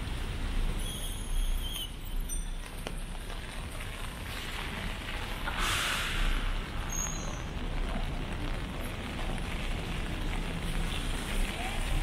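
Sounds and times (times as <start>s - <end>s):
low city rumble: 0.0s - 12.0s
rain falling on wet pavement: 0.0s - 12.0s.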